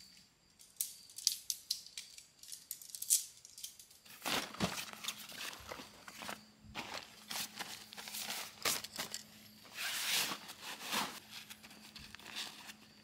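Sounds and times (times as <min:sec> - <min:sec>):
fabric rustling and crinkling: 0:04.0 - 0:13.0.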